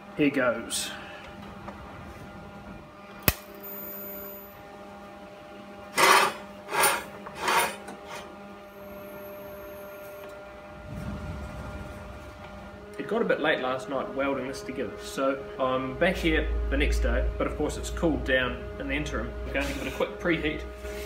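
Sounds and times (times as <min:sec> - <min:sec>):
welding machine hum: 0:08.6 - 0:13.4.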